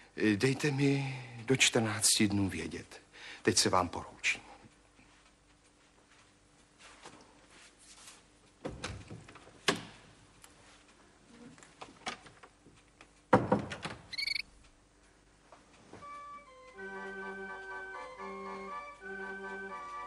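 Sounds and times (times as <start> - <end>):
wooden door knocks and clicks: 13.3 - 14.1
high ringing tone: 14.2 - 14.4.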